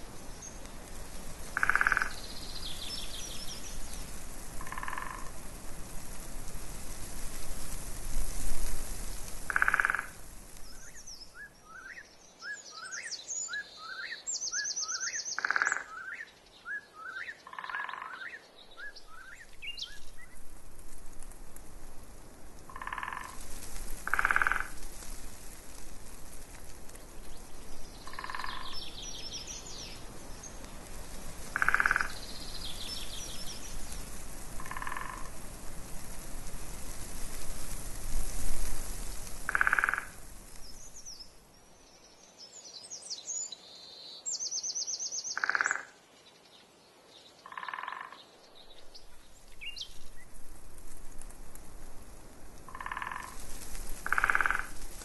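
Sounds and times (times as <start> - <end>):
small birds twittering: 0.0 - 5.3, 9.2 - 20.4, 26.5 - 35.4, 39.0 - 50.4
frog croaking: 1.6 - 2.2, 4.6 - 5.3, 9.5 - 10.2, 15.4 - 15.9, 17.4 - 18.3, 22.7 - 23.4, 24.0 - 24.8, 28.1 - 28.8, 31.5 - 32.2, 34.6 - 35.3, 39.5 - 40.2, 45.4 - 46.0, 47.4 - 48.2, 52.7 - 53.4, 54.0 - 54.8.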